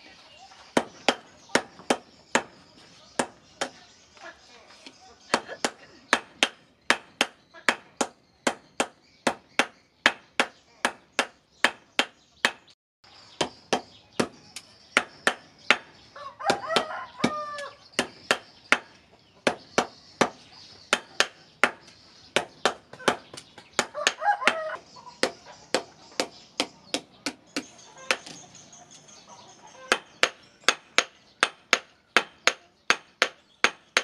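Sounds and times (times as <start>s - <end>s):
rooster crowing: 16.1s - 17.8s, 23.8s - 24.9s.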